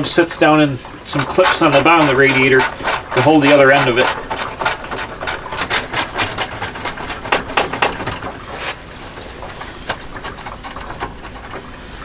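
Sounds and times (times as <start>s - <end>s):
hand ratchet clicking: 1.2s - 8.3s.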